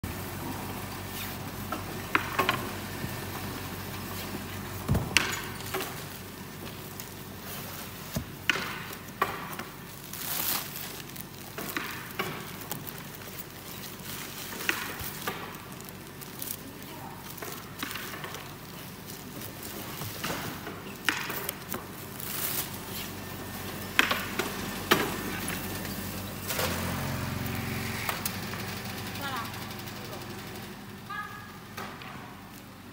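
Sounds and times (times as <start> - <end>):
wooden peels clattering: 1.7 - 26.8
plastic film rustling: 3.2 - 27.5.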